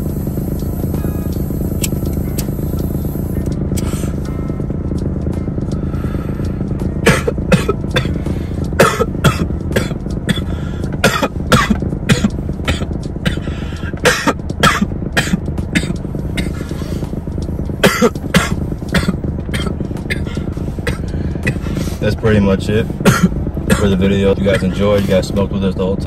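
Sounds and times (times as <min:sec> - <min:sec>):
car hum: 0:00.0 - 0:26.0
people coughing: 0:07.0 - 0:08.2, 0:08.8 - 0:16.7, 0:17.8 - 0:21.7, 0:23.0 - 0:25.2.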